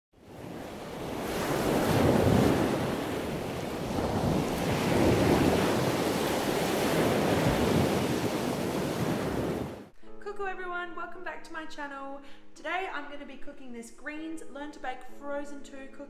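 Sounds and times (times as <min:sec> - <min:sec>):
ocean surf breaking: 0:00.2 - 0:09.9.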